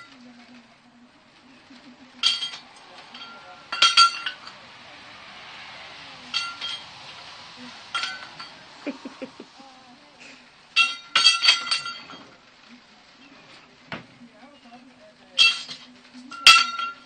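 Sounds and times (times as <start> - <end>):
high clinking and ringing: 2.1 - 9.6, 10.7 - 12.4, 14.6 - 17.0.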